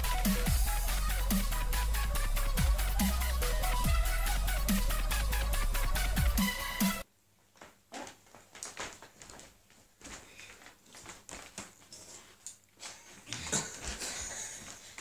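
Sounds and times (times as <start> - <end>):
electronic music: 0.0 - 7.0.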